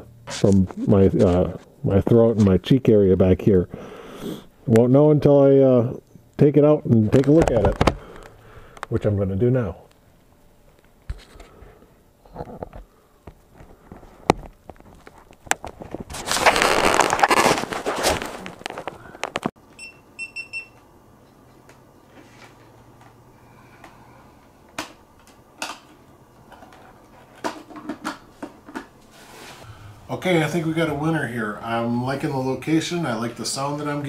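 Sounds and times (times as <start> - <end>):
helmet rustling scrape: 16.0 - 18.7, 29.1 - 29.7.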